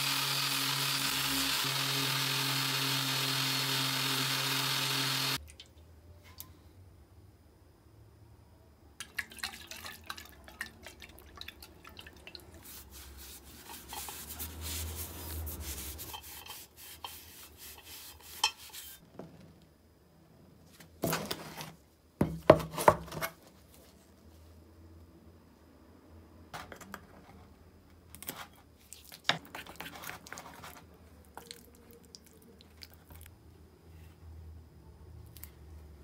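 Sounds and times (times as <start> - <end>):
cloth rubbing metal grater: 12.7 - 19.0.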